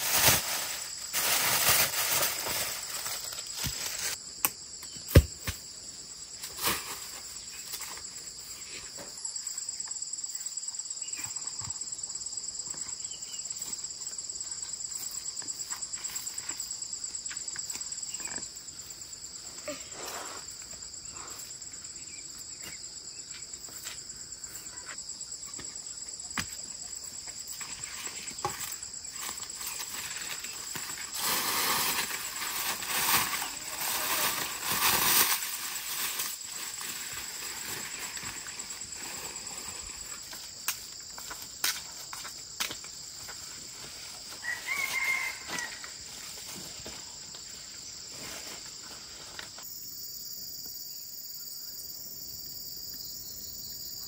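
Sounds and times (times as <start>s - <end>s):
rustling: 0.0s - 4.2s
insects trilling: 0.0s - 54.0s.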